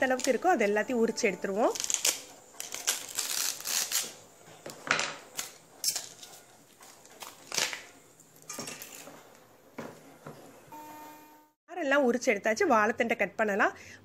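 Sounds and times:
banana stem tearing and scraping: 0:01.7 - 0:04.2, 0:05.3 - 0:07.9.

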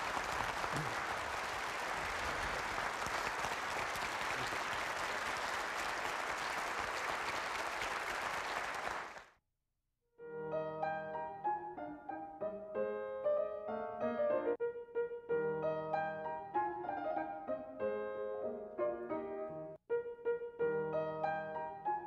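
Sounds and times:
audience applauding: 0:00.0 - 0:09.4
piano music: 0:10.2 - 0:22.0.

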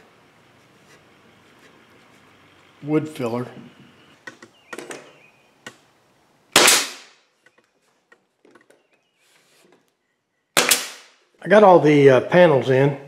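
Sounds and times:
nail gun shot: 0:06.5 - 0:07.2, 0:10.6 - 0:11.2.

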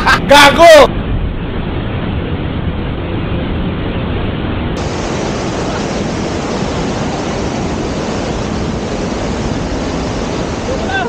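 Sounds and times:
waterfall rushing: 0:04.8 - 0:11.0.

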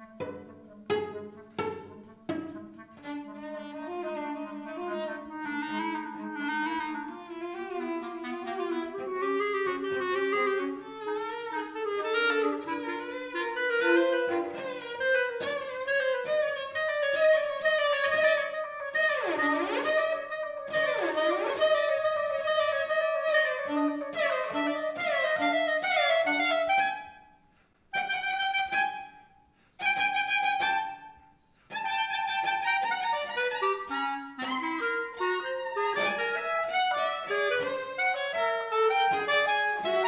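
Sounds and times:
cello: 0:00.0 - 0:40.0
clarinet: 0:00.0 - 0:40.0.

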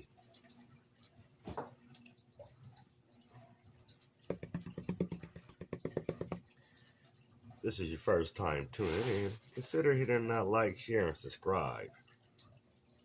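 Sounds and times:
water swishing in plastic pan: 0:08.6 - 0:10.1.

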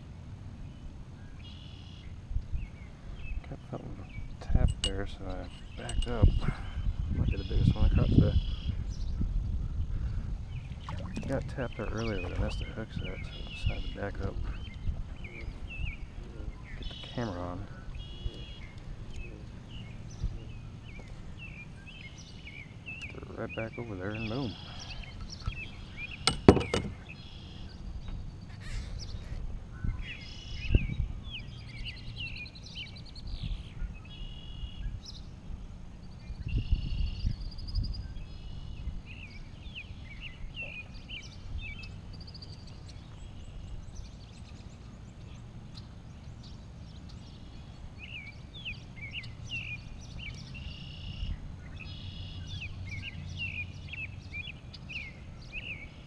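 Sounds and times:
songbirds chirping: 0:00.0 - 0:56.0
dull knocks: 0:26.3 - 0:27.0.

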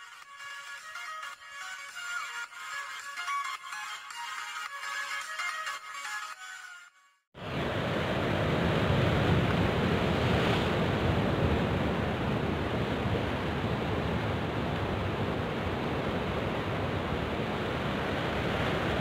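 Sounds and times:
wind on microphone: 0:07.4 - 0:19.0.

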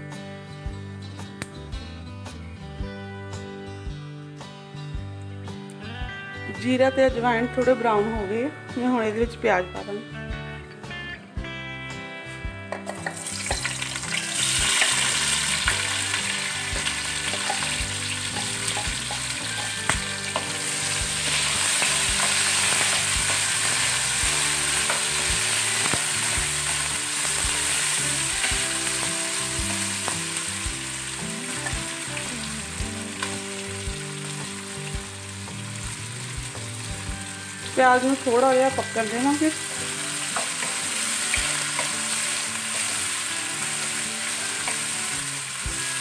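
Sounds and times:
onions sizzling in hot oil: 0:12.9 - 0:46.0.

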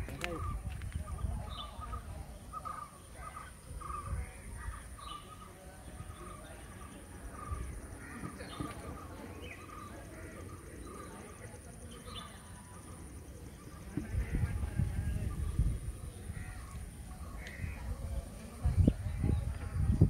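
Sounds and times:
bird calling: 0:00.0 - 0:14.8.

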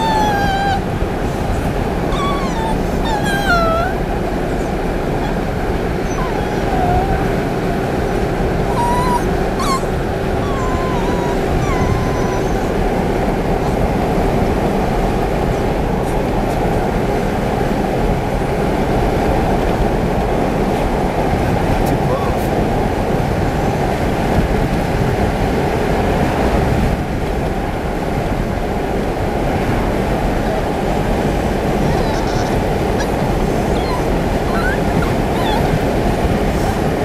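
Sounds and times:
puppy whimpering: 0:00.0 - 0:13.9, 0:21.9 - 0:22.6, 0:30.4 - 0:37.0
car road noise: 0:00.0 - 0:37.0.

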